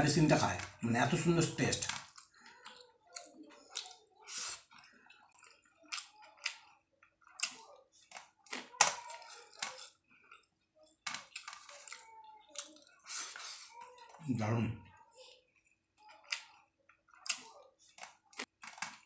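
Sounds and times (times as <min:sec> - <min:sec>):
wet chewing and lip smacks: 0:02.1 - 0:13.8.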